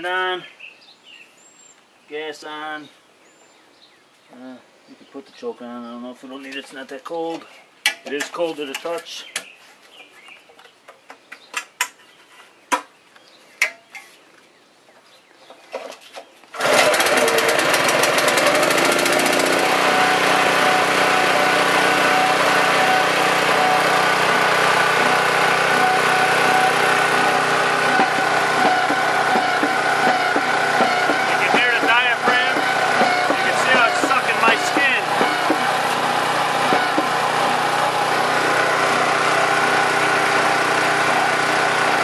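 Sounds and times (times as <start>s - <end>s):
small gasoline engine running: 16.5s - 42.0s.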